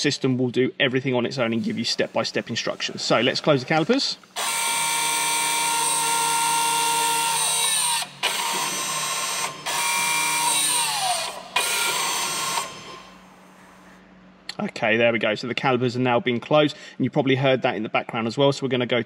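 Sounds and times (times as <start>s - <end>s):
electric brake motors whirring: 1.8s - 13.9s.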